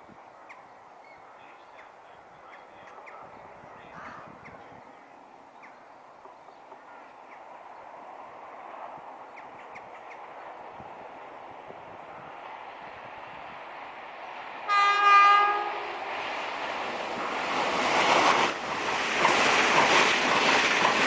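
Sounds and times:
distant train rumble: 0.0 - 21.0
birds chirping: 0.2 - 10.7.

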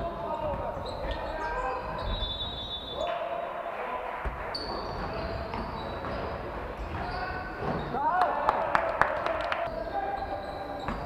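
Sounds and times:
shoes squealing: 0.1 - 3.2, 4.3 - 8.1, 9.7 - 11.0.

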